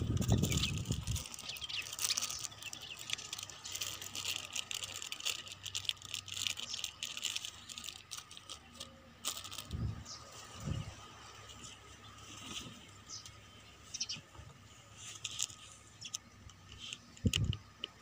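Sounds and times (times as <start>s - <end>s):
wrapping crinkling and rustling: 0.0s - 10.5s, 14.9s - 17.3s.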